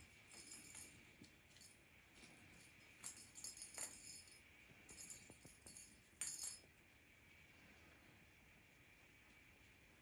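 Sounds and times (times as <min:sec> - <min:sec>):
small bell jingling: 0:00.0 - 0:06.7.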